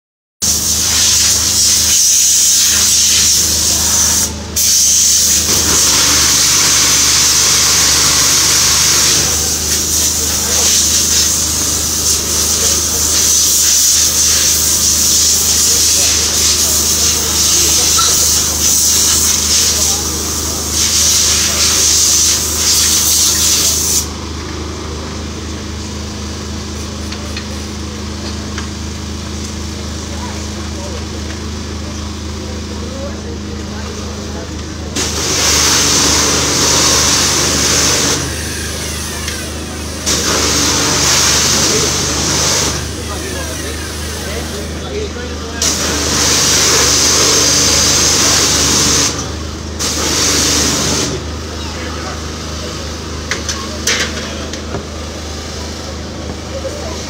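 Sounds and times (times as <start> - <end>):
hose water spraying: 0.4 - 24.1, 35.0 - 44.8, 45.6 - 51.2.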